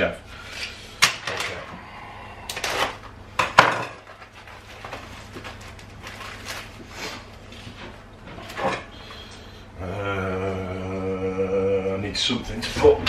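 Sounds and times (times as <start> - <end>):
kitchen items clattering: 2.6 - 8.9.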